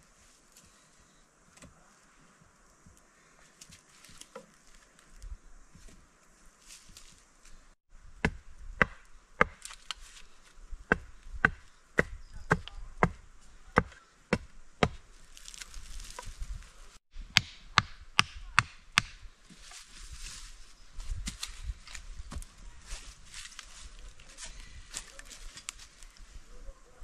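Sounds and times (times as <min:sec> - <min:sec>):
axe chopping wood: 0:08.2 - 0:10.0, 0:10.9 - 0:13.2, 0:13.8 - 0:15.0, 0:17.3 - 0:19.3.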